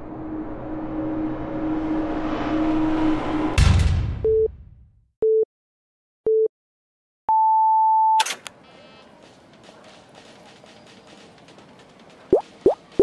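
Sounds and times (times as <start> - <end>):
heavy thud with rumble: 3.6 - 4.3.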